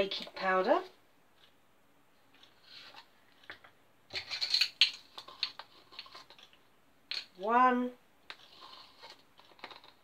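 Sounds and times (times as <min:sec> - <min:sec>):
measuring spoons rattling: 0:04.1 - 0:06.5.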